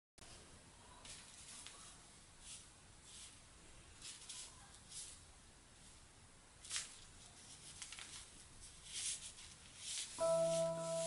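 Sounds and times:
ink brush swishing on paper: 1.0 - 6.0, 8.6 - 11.0.

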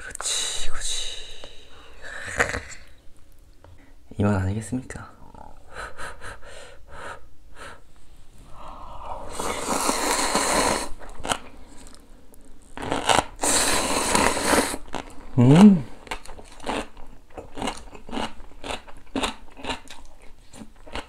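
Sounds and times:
slurping noodles: 9.0 - 11.4, 12.8 - 15.1
crunchy chewing: 9.4 - 15.3, 16.0 - 21.0.

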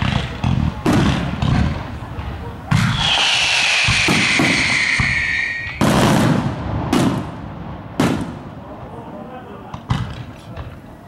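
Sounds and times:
sharp firework bangs: 0.0 - 8.8
fireworks crackling: 0.0 - 11.0
falling firework whistle: 2.7 - 6.5.

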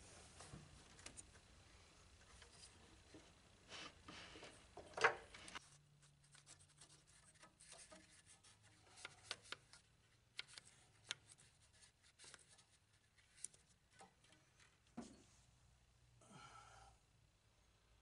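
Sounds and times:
brush scratching metal: 5.6 - 9.8.

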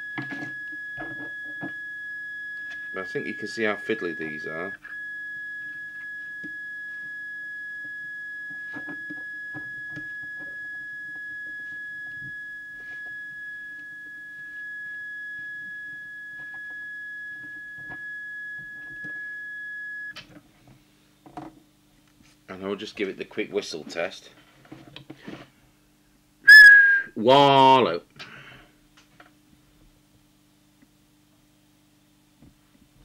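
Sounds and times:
high whistle-like tone: 0.0 - 20.2, 26.5 - 27.2
low hum: 0.0 - 20.2.

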